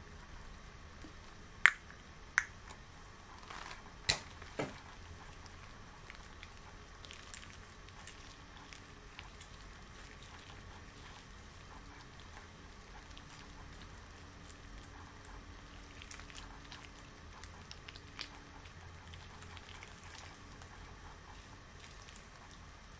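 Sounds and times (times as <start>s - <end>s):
latex gloves snapping: 3.5s - 4.7s.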